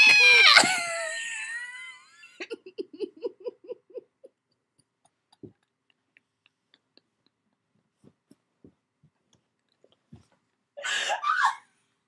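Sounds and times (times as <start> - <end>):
woman squealing: 0.0 - 2.1, 11.1 - 11.6.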